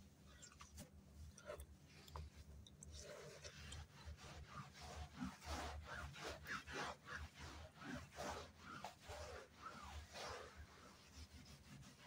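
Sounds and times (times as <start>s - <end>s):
cloth brushing on carpet: 3.1s - 12.0s.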